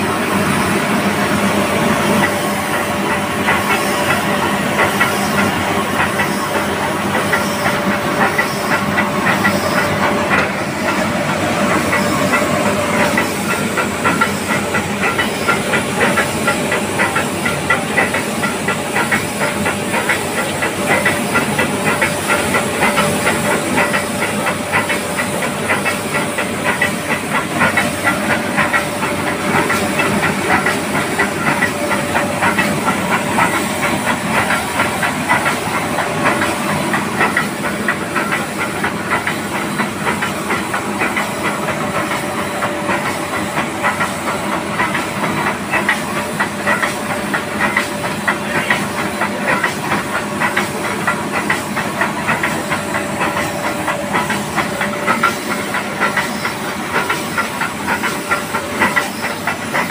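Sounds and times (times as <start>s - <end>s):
steam locomotive hissing: 0.0s - 59.9s.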